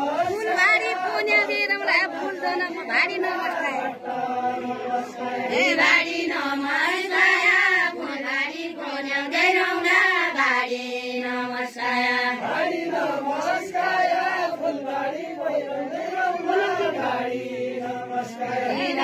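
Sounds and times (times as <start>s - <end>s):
voices singing a chant: 0.0s - 19.0s.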